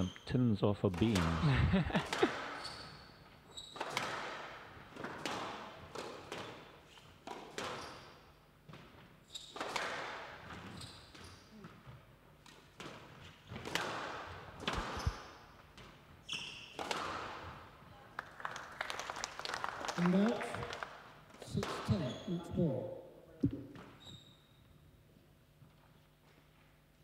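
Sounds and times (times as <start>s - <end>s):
squash ball hitting rackets and walls: 0.9s - 17.8s, 21.4s - 22.4s
shoe squeaks on wooden floor: 2.5s - 4.0s, 7.7s - 8.2s, 9.2s - 9.6s, 10.6s - 11.5s, 14.7s - 15.4s, 16.2s - 16.8s, 21.8s - 22.6s, 23.7s - 24.8s.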